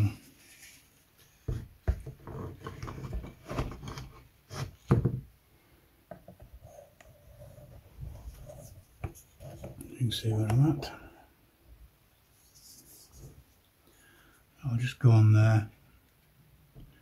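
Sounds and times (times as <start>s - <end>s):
wood scraping and rubbing: 1.5s - 5.0s, 6.6s - 10.9s.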